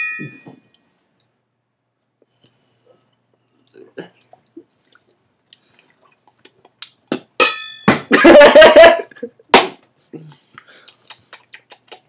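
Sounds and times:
glass clinking: 0.0s - 0.7s, 7.4s - 8.4s
chewing sounds: 3.3s - 7.3s, 10.2s - 12.0s
person spitting and hacking: 6.3s - 7.4s.

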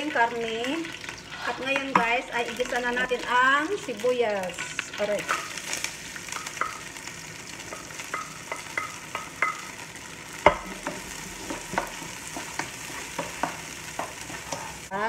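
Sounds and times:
onion sizzling in hot oil: 0.0s - 15.0s
wooden spatula scraping and tapping: 1.4s - 3.4s, 7.6s - 9.8s, 10.4s - 14.9s.

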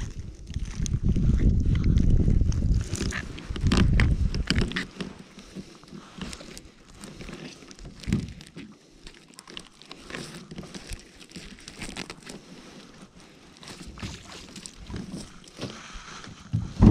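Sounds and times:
rustling and scraping of net mesh: 2.7s - 16.9s
low thump: 16.5s - 16.9s.

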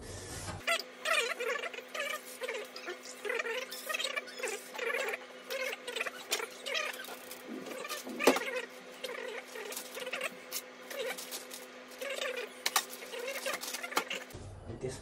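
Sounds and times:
plastic bag crinkling: 10.9s - 14.3s.

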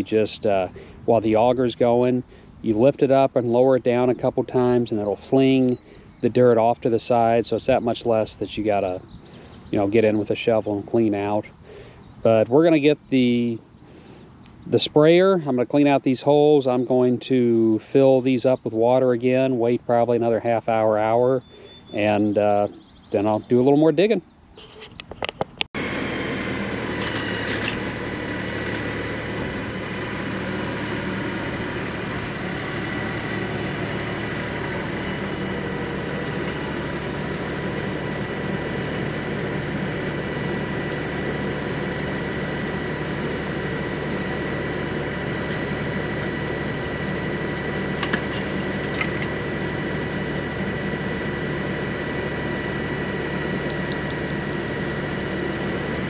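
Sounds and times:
thin steady whine: 0.0s - 56.0s
tractor diesel engine running: 0.0s - 56.0s
sharp clicks: 53.6s - 54.6s.

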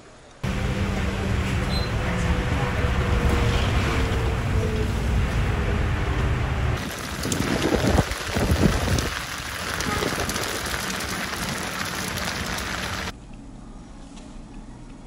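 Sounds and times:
heavy rain falling: 6.8s - 13.1s.

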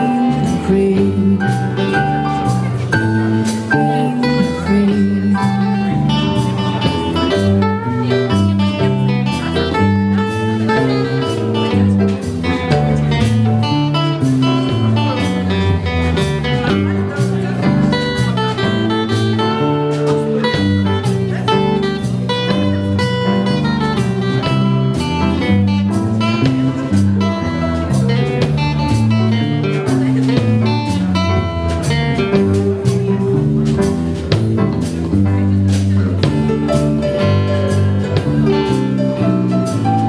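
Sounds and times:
acoustic guitar: 0.0s - 40.0s
drum kit with cymbals: 0.0s - 40.0s
keyboard: 0.0s - 40.0s
walking electric bass: 0.0s - 40.0s.

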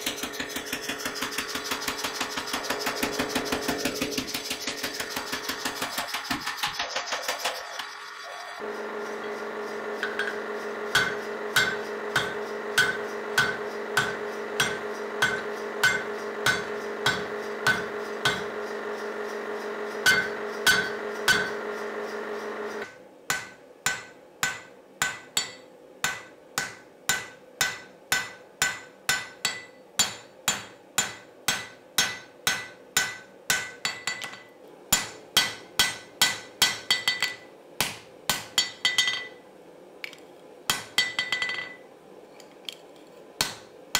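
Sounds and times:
hammer striking hot steel: 0.0s - 7.9s, 10.0s - 18.6s, 20.0s - 21.6s, 22.8s - 39.4s, 40.7s - 41.8s, 43.4s - 43.7s
machine hum: 0.0s - 22.8s
hammer ringing on anvil: 10.0s - 18.5s, 20.0s - 21.6s, 23.3s - 37.4s, 38.3s - 39.4s, 40.7s - 41.8s.

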